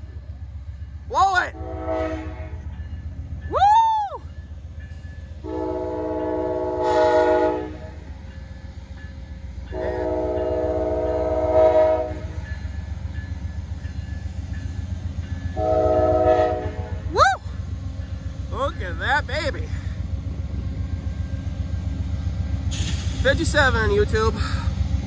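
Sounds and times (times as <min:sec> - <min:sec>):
train rumbling by: 0:00.0 - 0:25.0
locomotive air horn blasts: 0:01.6 - 0:02.7, 0:05.4 - 0:08.0, 0:09.7 - 0:12.4, 0:15.6 - 0:17.1.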